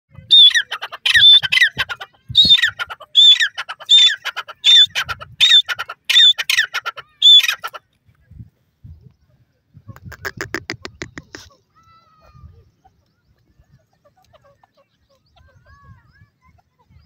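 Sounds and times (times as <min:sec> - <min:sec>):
bird shrill whistled calls: 0:00.2 - 0:01.8, 0:07.2 - 0:07.6.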